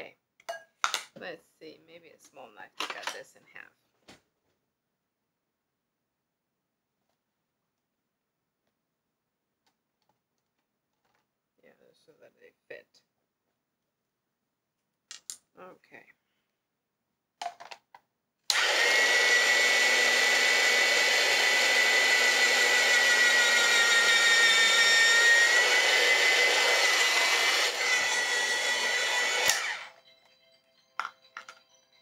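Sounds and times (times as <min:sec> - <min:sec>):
electric slicer motor whining: 0:18.5 - 0:30.0.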